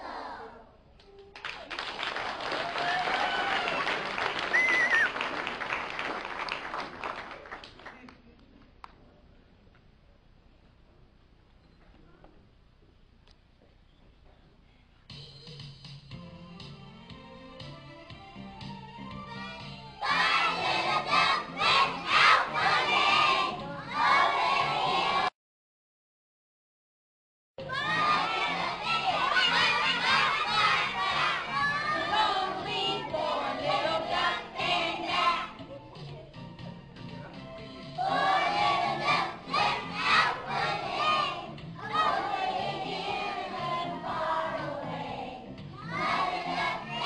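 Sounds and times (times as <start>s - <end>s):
audience applause: 1.4s - 8.2s
children shouting: 27.6s - 32.1s.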